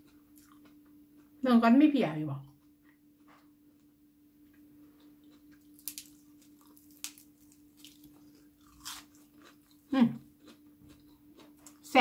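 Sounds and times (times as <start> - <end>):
faint steady hum: 0.0 - 12.0
crunchy bite: 5.0 - 11.8
vegetable stem snapping: 5.8 - 6.1.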